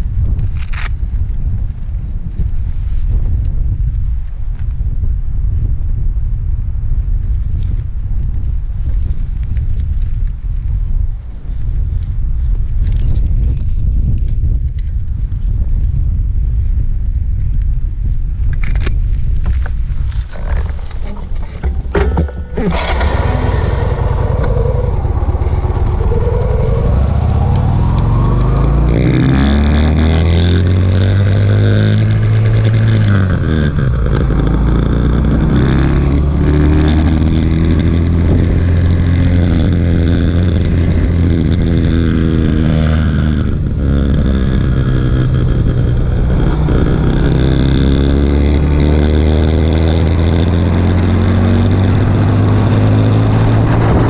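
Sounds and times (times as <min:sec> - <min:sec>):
motorcycle engine accelerating: 0:19.1 - 0:54.0.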